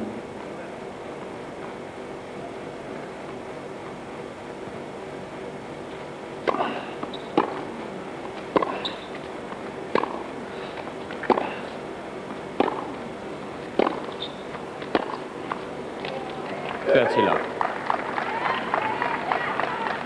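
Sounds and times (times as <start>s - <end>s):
steady low hum: 0.0s - 20.0s
tennis rackets hitting ball: 6.4s - 16.5s.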